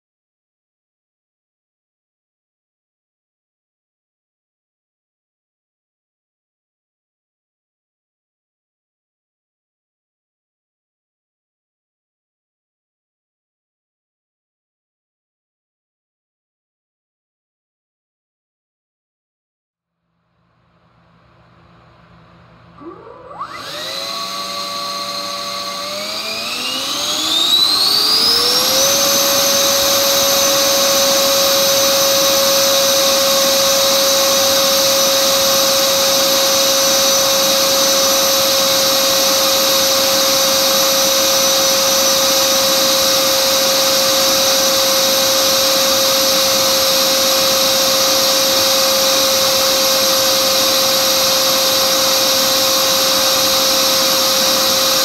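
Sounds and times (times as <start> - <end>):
electric ducted fan whine: 20.2 - 54.9.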